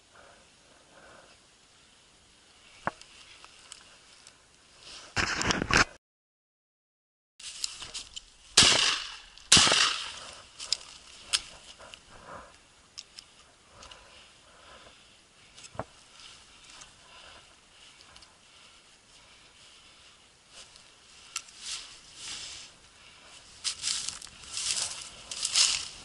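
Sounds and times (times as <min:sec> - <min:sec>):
dry grass crunching and rustling: 0:07.4 - 0:12.4, 0:13.0 - 0:26.0.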